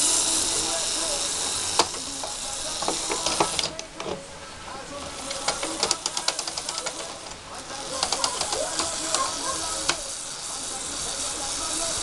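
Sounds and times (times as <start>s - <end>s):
toy motor hiss: 0.0s - 3.8s, 5.0s - 12.0s
plastic gear clicks: 1.8s - 4.2s, 5.2s - 10.0s.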